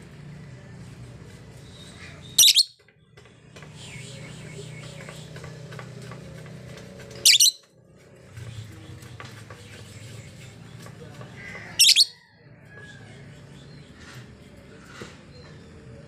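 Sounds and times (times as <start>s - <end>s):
faint chatter: 0.0s - 16.0s
lovebird shrill calls: 2.4s - 2.8s, 7.2s - 7.6s, 11.8s - 12.1s.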